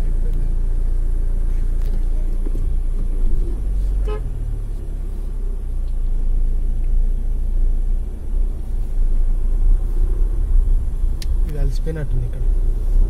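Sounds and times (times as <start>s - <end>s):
car engine rumbling: 0.0s - 13.0s
car horn toot: 3.9s - 4.6s.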